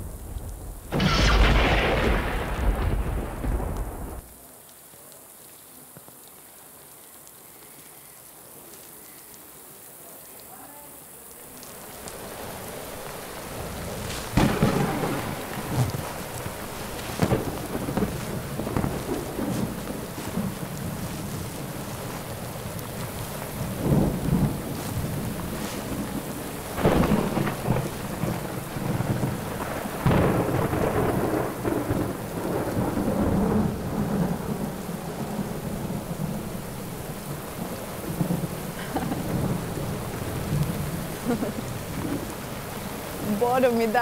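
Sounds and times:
low rumbling surges: 0.0 - 4.3
heavy rain pouring: 0.0 - 44.0.

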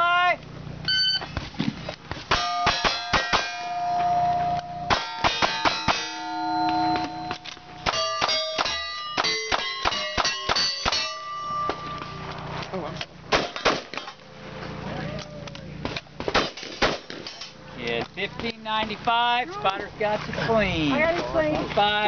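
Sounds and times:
steel target ringing: 2.3 - 12.4
rapid gunshots: 13.3 - 14.2, 16.2 - 17.4.

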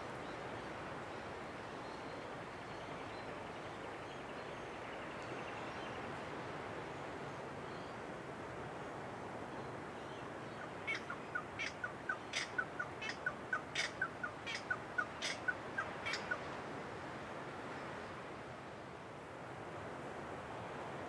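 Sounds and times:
bird calling rapid notes: 10.9 - 16.4.

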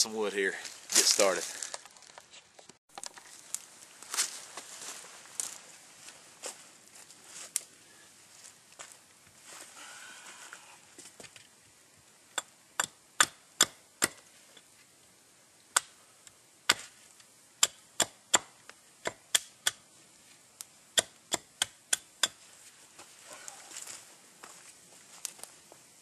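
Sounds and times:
axe chopping wood: 12.4 - 14.2, 16.7 - 17.0, 17.6 - 19.8, 21.0 - 22.4.

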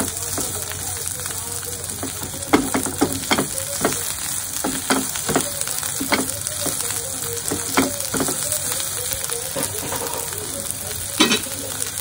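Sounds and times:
chicken sizzling in a pan: 0.0 - 12.0
spatula knocking and scraping pan: 1.9 - 8.7.

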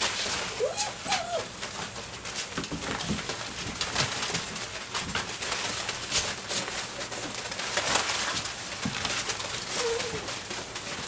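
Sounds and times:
paws scratching in wood shavings: 0.0 - 11.0
puppy growls: 0.5 - 1.6, 9.7 - 10.5.

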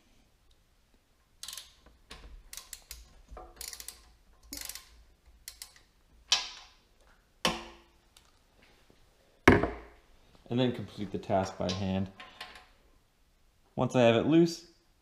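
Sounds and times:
socket ratchet clicking: 1.4 - 1.9, 2.5 - 5.9.

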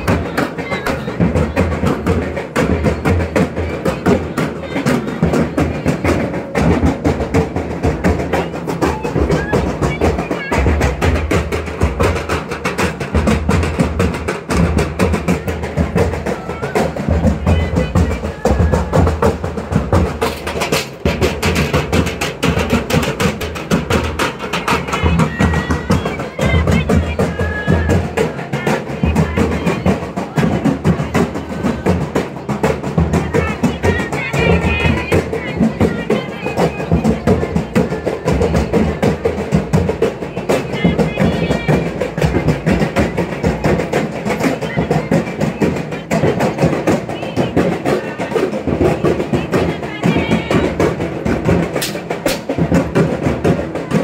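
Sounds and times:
fast drumbeat: 0.0 - 54.0
people singing: 14.5 - 54.0.

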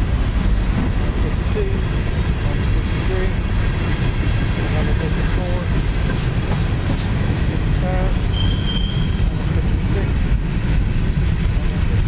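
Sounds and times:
freight cars rumbling on rails: 0.0 - 12.0
high wheel squeal: 8.2 - 9.4.

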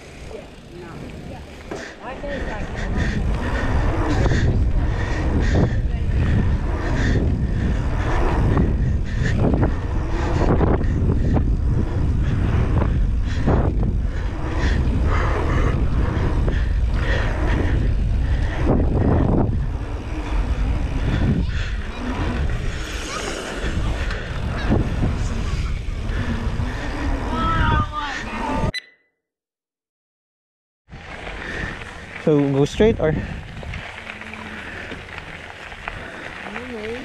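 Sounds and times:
bike tyres on dirt and rock: 0.0 - 28.7, 30.9 - 37.0
wind buffeting microphone: 0.0 - 28.7, 30.9 - 37.0
bike knocking and rattling: 30.9 - 37.0.

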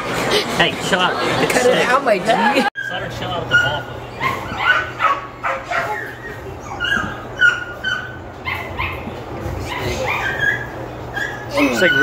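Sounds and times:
puppy yipping and whimpering: 2.8 - 12.0.

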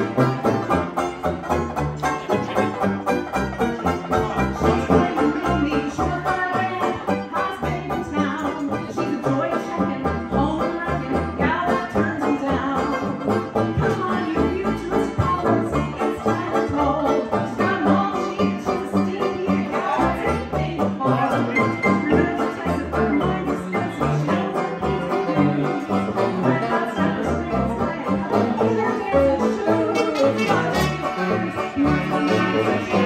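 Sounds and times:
steady bass beat: 0.0 - 8.4
jazz band playing: 0.0 - 33.0
strummed banjo: 0.0 - 33.0.

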